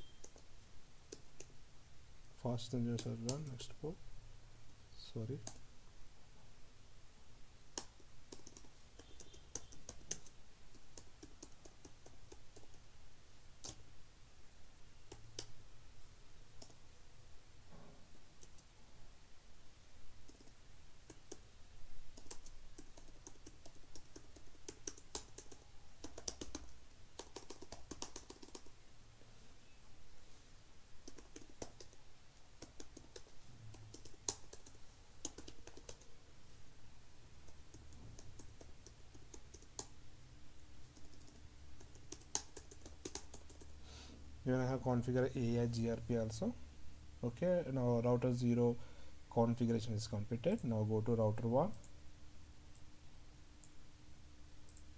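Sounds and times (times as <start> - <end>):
typing on computer keyboard: 7.8 - 12.8, 20.2 - 21.4, 22.1 - 28.7, 31.0 - 32.0, 32.6 - 36.1, 37.5 - 39.9, 40.9 - 43.7.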